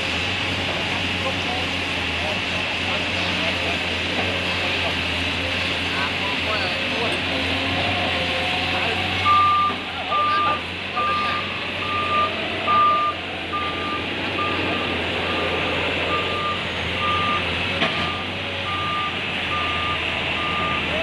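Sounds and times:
diesel engine running: 0.0s - 21.0s
excavator travel alarm beeping: 9.2s - 21.0s.

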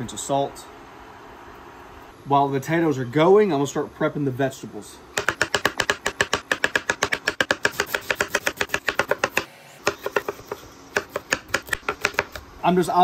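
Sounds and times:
knife chopping on cutting board: 5.2s - 12.4s.

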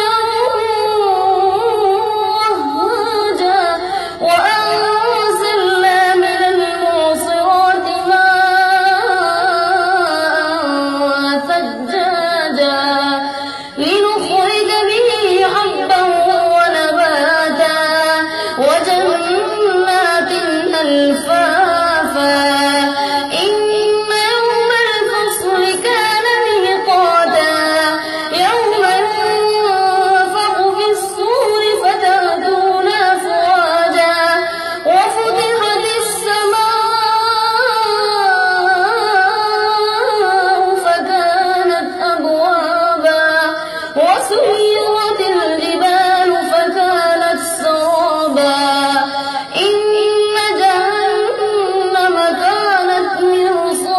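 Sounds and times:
boy chanting melodically: 0.0s - 53.9s.

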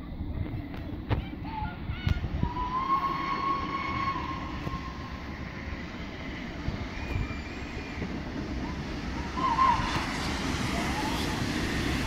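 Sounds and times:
faint higher whistle tone: 1.4s - 5.2s, 6.2s - 8.2s, 9.2s - 11.6s
distant steam whistle: 2.4s - 5.2s, 9.2s - 11.6s.

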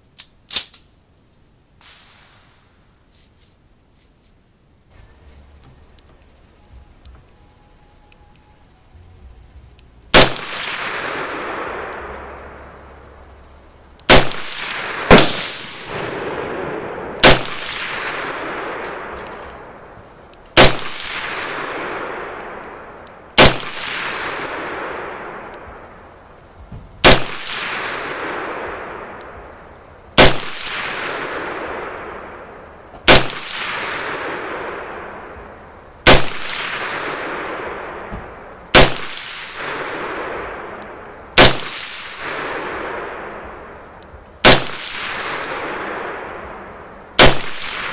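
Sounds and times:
rifle shots with echo: 10.1s - 26.1s, 27.0s - 47.9s.

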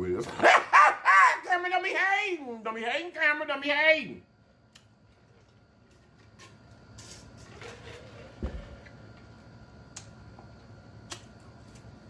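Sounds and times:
mug set down with a thud: 8.4s - 8.8s.

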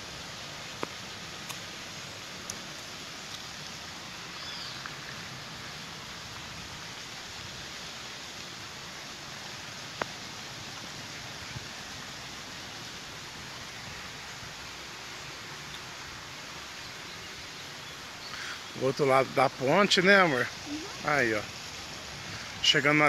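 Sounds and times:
outdoor background hiss: 0.0s - 23.0s.

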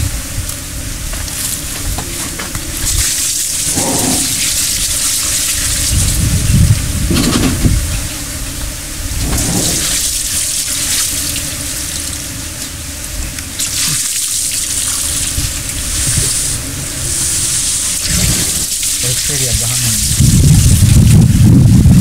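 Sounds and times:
low rumble: 0.0s - 13.6s
water splashing from a bucket: 1.2s - 6.4s, 9.2s - 12.3s, 13.4s - 21.2s.

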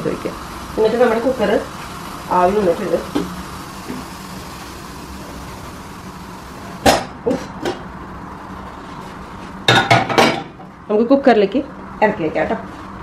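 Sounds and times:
steady hiss: 0.0s - 9.8s.

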